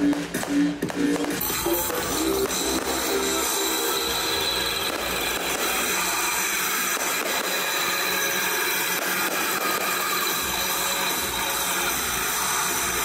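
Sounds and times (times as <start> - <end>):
faint fireworks pops: 0.0 - 3.4
fireworks hiss and crackle: 0.0 - 13.0.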